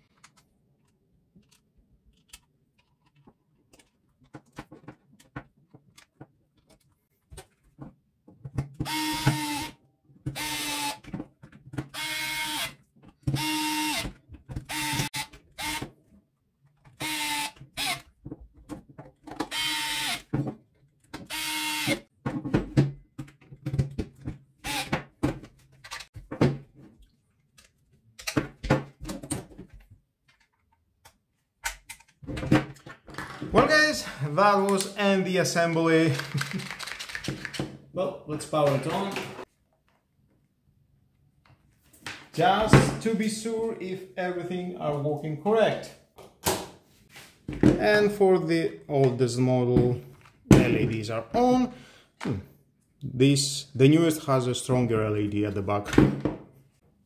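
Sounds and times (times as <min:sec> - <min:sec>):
plastic parts clicking: 0:00.1 - 0:07.6, 0:35.6 - 0:37.6
electric screwdriver whirring: 0:08.8 - 0:09.7, 0:10.4 - 0:11.0, 0:11.9 - 0:12.7, 0:13.4 - 0:14.1, 0:14.7 - 0:15.8, 0:17.0 - 0:18.1, 0:19.5 - 0:20.3, 0:21.3 - 0:22.0, 0:24.6 - 0:24.9.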